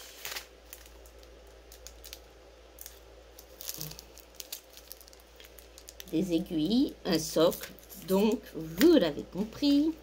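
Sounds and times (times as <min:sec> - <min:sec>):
bubble wrap and plastic crinkling: 0:00.0 - 0:10.0.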